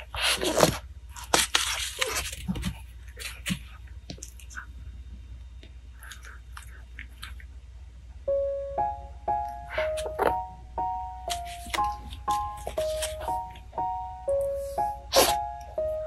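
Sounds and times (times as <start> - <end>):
kitten rustling and scratching: 0.0 - 5.2, 11.3 - 13.7
simple keyboard melody: 8.2 - 16.0.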